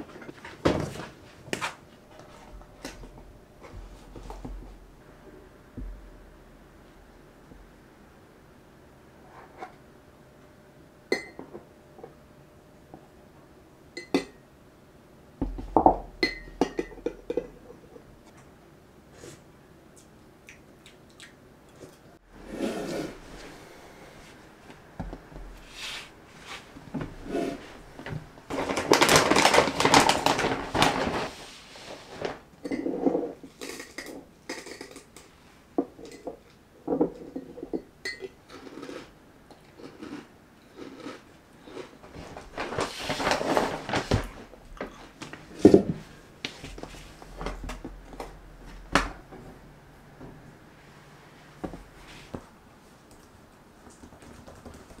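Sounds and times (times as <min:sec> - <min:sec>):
plastic bag rustling: 0:25.6 - 0:32.5, 0:42.0 - 0:47.6.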